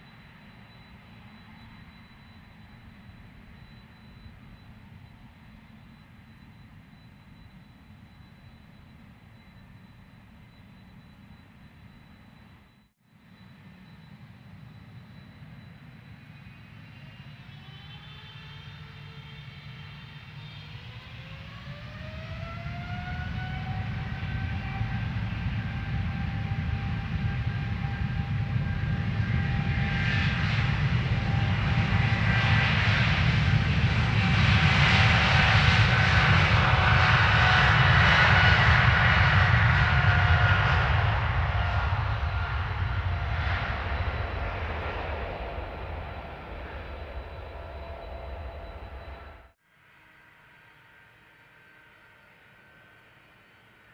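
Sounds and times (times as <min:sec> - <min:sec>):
airliner taking off: 0:13.4 - 0:49.6
jet engines spooling up: 0:13.4 - 0:49.6.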